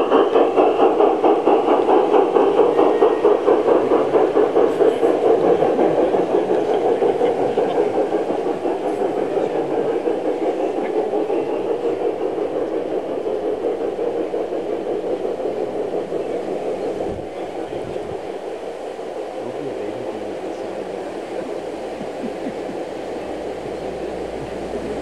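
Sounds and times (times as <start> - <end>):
model train wheels rumbling and clicking: 0.0 - 25.0.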